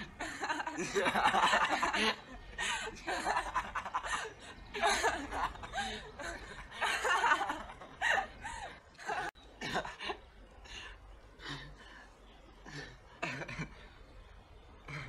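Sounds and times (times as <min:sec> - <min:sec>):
woman laughing and giggling: 0:00.0 - 0:10.2.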